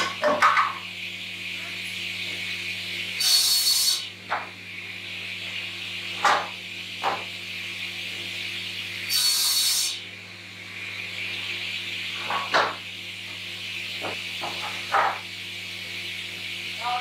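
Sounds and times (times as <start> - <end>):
panel saw humming: 1.5 - 6.8, 7.4 - 12.2
saw blade cutting timber: 3.2 - 4.1, 9.1 - 10.0.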